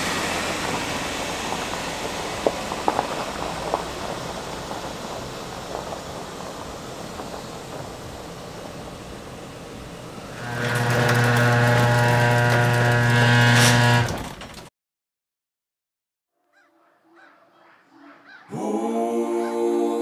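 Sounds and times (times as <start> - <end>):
car engine driving off: 0.0 - 14.6
garage door opener motor hum: 6.9 - 14.7.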